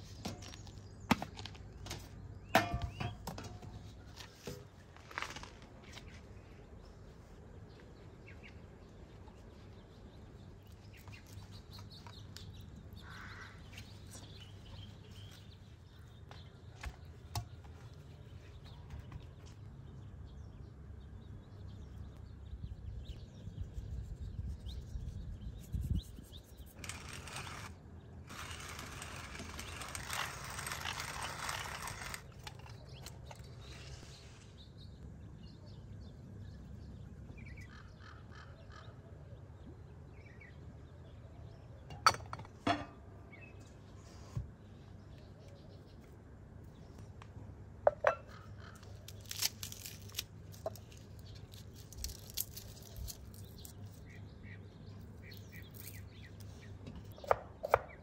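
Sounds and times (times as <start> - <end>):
dry rasping: 28.3 - 32.4.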